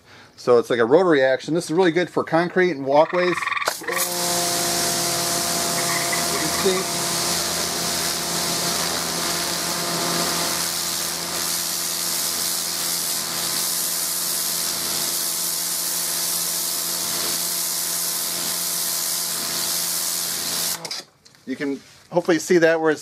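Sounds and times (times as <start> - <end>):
electric motor and pump humming: 3.5 - 21.1
water spray hissing on concrete: 3.7 - 20.8.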